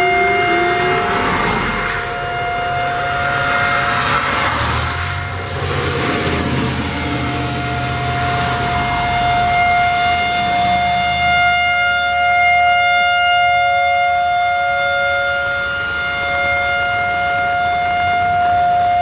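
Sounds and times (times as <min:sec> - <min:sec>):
electronic siren steady tone: 0:00.0 - 0:19.0
lower siren tone: 0:00.0 - 0:19.0
tyre hiss on wet road: 0:03.8 - 0:11.2.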